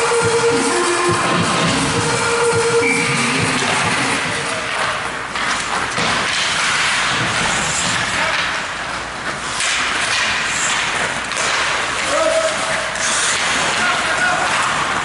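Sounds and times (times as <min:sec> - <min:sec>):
hockey sticks and puck knocking: 0:03.4 - 0:15.0
skate blades scraping ice: 0:03.6 - 0:15.0.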